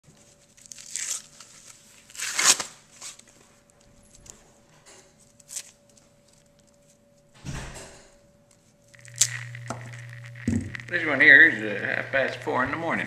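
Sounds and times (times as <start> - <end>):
corn husks tearing and rustling: 0.5 - 3.3, 9.0 - 12.4.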